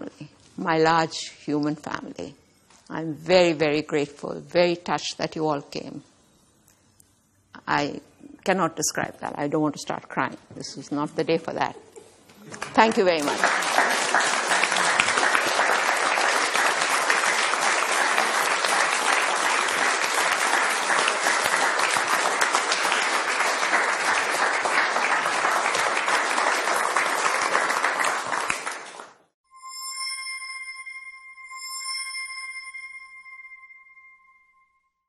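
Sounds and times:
audience applauding: 12.4 - 29.2.

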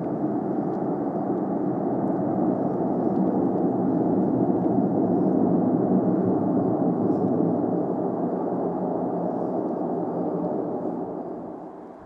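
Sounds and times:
turboprop engines droning: 0.0 - 12.0.

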